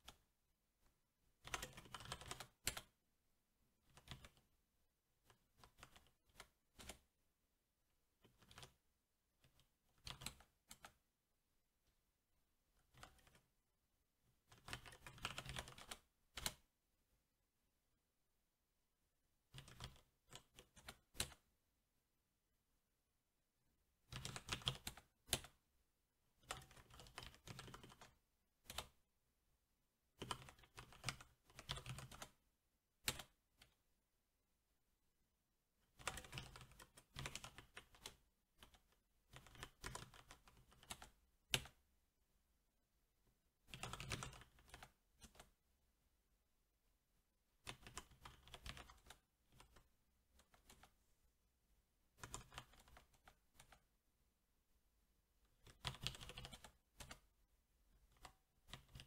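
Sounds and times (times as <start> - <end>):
mechanical keyboard typing: 1.4 - 3.0, 3.9 - 4.4, 5.3 - 7.1, 8.2 - 8.8, 9.4 - 11.0, 12.8 - 13.4, 14.5 - 16.6, 19.5 - 21.4, 24.1 - 25.6, 26.4 - 29.0, 30.2 - 32.4, 33.0 - 33.7, 36.0 - 41.8, 43.7 - 45.5, 47.6 - 49.8, 52.2 - 53.8, 55.6 - 57.2, 58.1 - 59.0.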